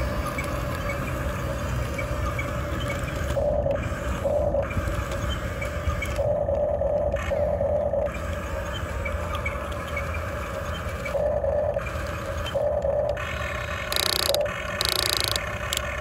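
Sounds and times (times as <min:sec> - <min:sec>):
electric motors whining: 0:10.8 - 0:16.0.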